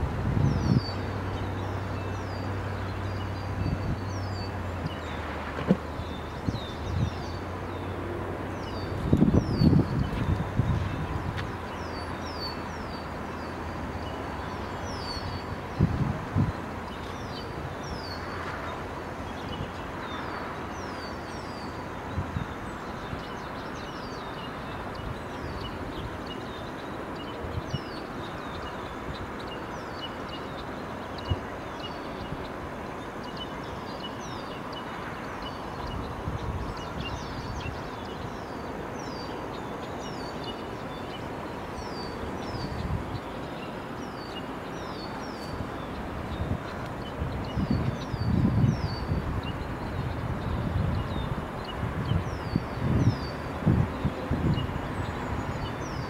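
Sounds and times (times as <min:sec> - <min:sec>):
birds chirping: 0:00.0 - 0:56.0
outdoor background noise: 0:00.0 - 0:56.0.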